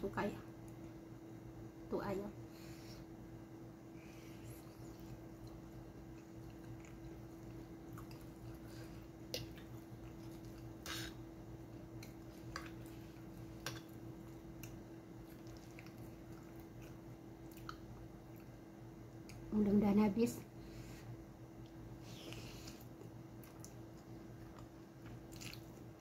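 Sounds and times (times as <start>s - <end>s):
steady low hum: 0.0s - 26.0s
chewing and slurping spaghetti: 4.5s - 11.2s, 12.0s - 18.5s, 22.2s - 26.0s.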